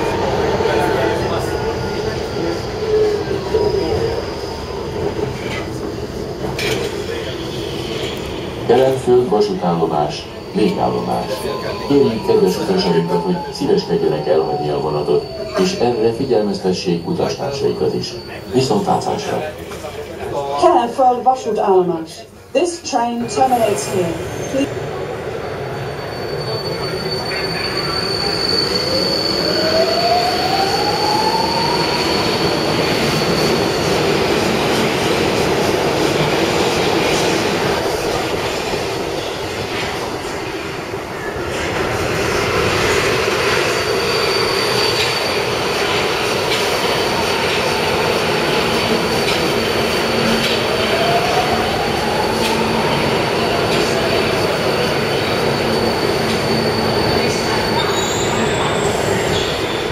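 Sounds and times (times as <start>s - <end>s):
high wheel squeal: 0.0s - 8.7s, 9.3s - 19.5s, 25.5s - 35.5s, 41.2s - 59.9s
wheels rumbling on rail: 0.0s - 20.2s, 23.5s - 59.9s.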